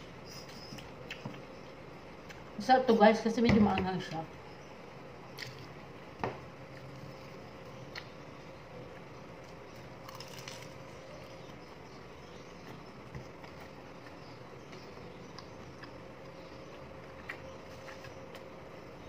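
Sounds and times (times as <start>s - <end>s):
low background hum: 0.0s - 19.0s
biting and chewing: 9.4s - 18.8s.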